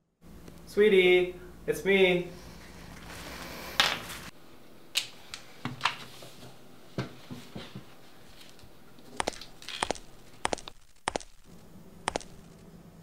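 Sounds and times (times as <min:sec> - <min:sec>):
quick footsteps: 0:09.2 - 0:12.7.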